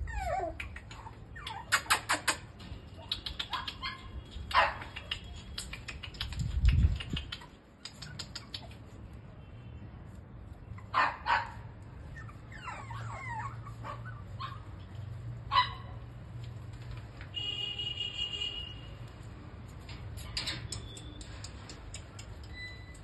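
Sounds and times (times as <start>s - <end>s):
puppy whining: 0.0s - 2.4s, 12.0s - 14.9s
puppies yapping: 0.0s - 5.7s, 10.7s - 16.1s.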